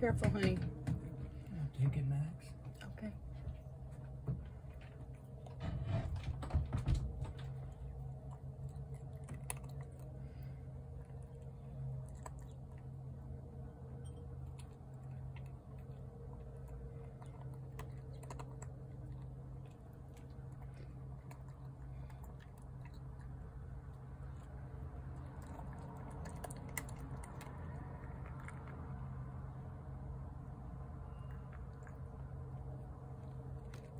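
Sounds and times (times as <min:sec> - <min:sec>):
low hum: 0:00.0 - 0:33.9
cat crunching dry kibble: 0:07.1 - 0:29.2, 0:31.4 - 0:33.9.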